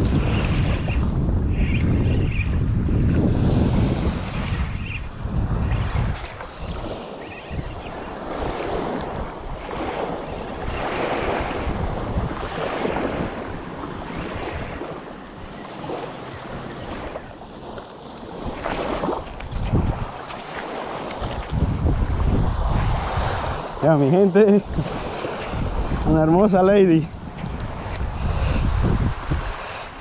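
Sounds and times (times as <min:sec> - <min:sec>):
wind blowing across microphone: 0:00.0 - 0:30.0
sea waves washing: 0:03.2 - 0:30.0.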